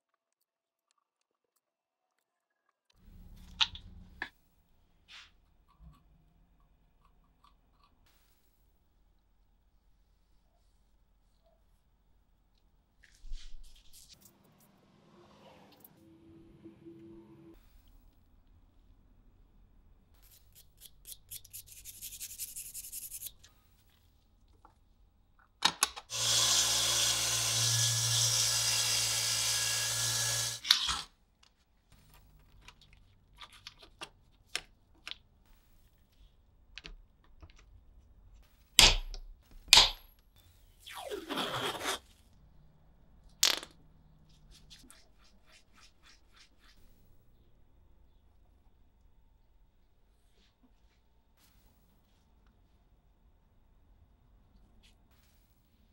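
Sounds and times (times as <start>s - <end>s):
small power tool running: 26.1s - 30.6s.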